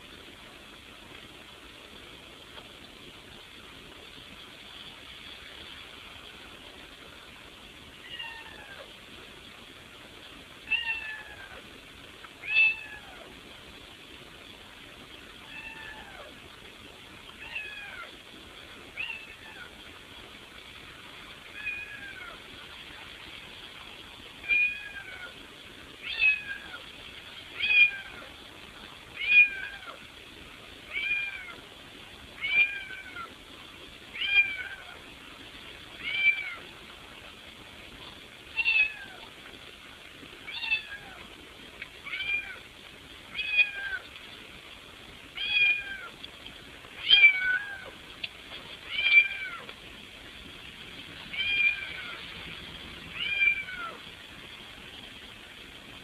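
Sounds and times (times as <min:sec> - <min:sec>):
cat meowing: 0:12.4 - 0:13.2, 0:32.4 - 0:33.3, 0:45.4 - 0:46.1, 0:47.0 - 0:48.0, 0:48.8 - 0:49.7, 0:51.3 - 0:52.2, 0:53.1 - 0:54.0.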